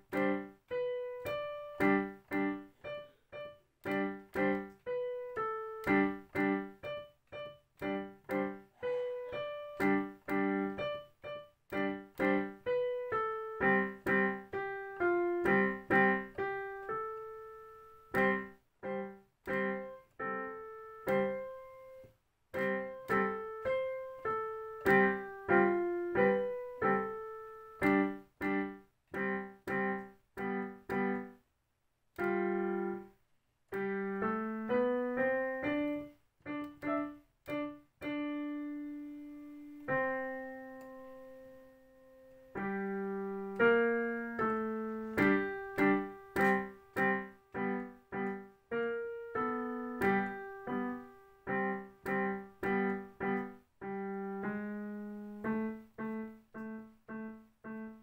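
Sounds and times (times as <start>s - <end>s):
digital piano notes and chords: 0.0s - 31.4s, 32.2s - 58.0s.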